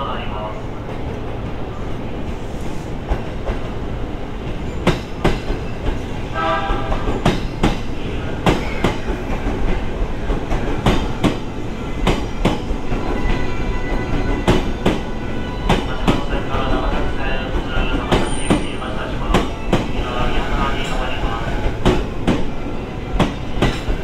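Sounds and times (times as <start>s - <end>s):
low train rumble: 0.0s - 24.0s
train wheels clicking over rail joints: 4.4s - 6.1s, 6.8s - 15.1s, 23.2s - 24.0s.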